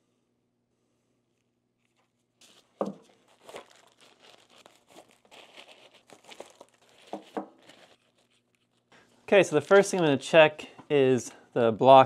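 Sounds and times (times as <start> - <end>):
wrapping crinkling and rustling: 1.8 - 10.1.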